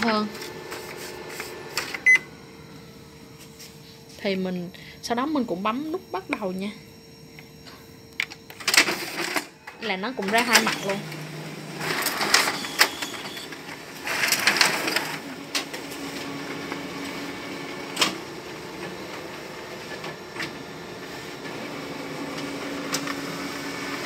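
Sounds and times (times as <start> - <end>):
photocopier humming: 0.0 - 24.0
photocopier clicks: 17.9 - 18.2.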